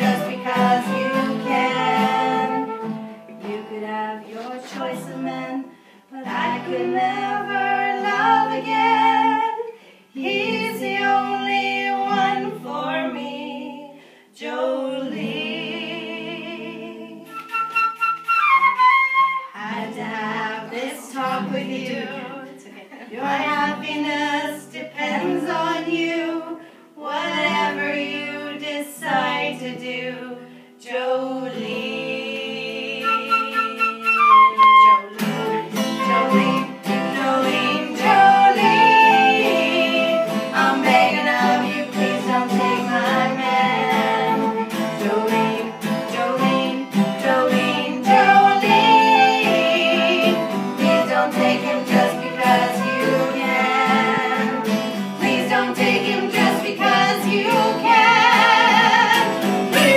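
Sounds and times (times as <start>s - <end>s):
flute: 0.0s - 3.6s, 17.2s - 19.6s, 32.8s - 45.8s, 47.5s - 55.6s
acoustic guitar and plucked strings: 0.0s - 9.5s, 31.5s - 59.9s
women singing: 0.0s - 17.6s, 19.0s - 59.9s.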